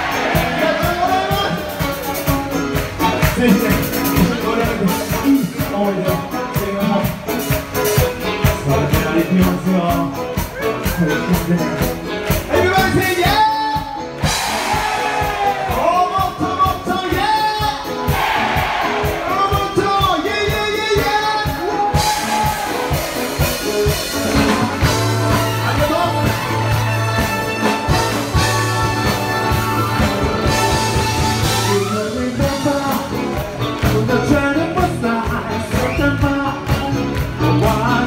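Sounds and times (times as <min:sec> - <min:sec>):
crowd clapping along: 0:00.0 - 0:17.4, 0:18.1 - 0:38.0
live band music: 0:00.0 - 0:38.0
person singing: 0:31.4 - 0:38.0.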